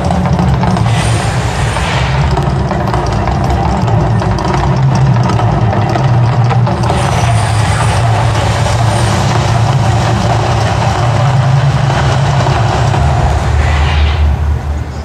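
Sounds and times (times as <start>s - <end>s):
loud low rumble: 0.0s - 15.0s.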